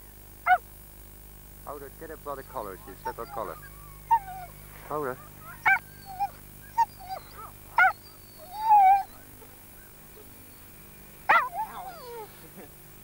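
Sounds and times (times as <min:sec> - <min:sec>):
dogs yelping and whining: 0:02.5 - 0:12.4.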